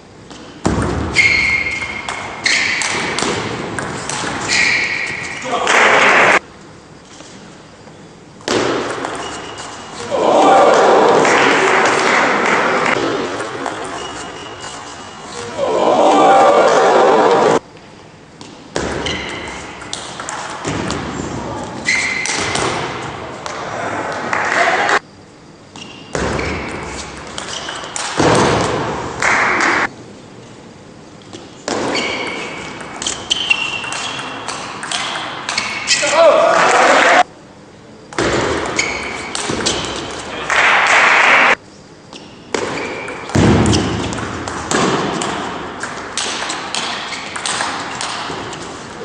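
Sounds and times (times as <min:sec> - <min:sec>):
sports hall background noise: 0:00.0 - 0:49.0
people shouting: 0:10.0 - 0:13.0, 0:15.4 - 0:17.6, 0:35.9 - 0:37.2.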